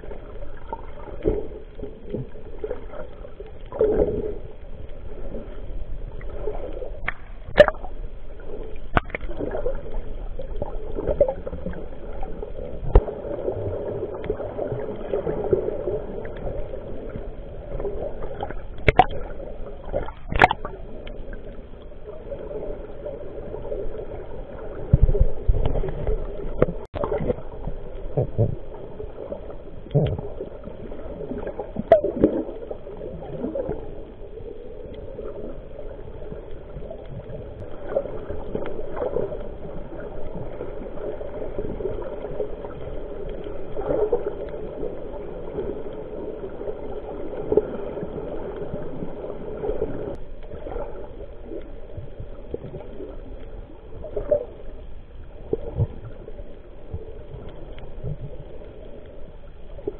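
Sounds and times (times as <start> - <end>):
muffled underwater rush: 0.0 - 59.9
gurgles and bubble pops: 6.2 - 8.0, 8.8 - 21.1, 23.5 - 33.9.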